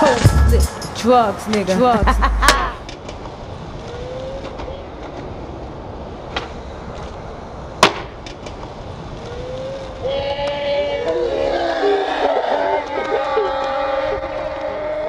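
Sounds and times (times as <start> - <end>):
skateboard wheels rolling on concrete: 0.0 - 15.0
skateboard clacks: 7.8 - 8.8
skateboard slapping the ground: 7.8 - 8.8.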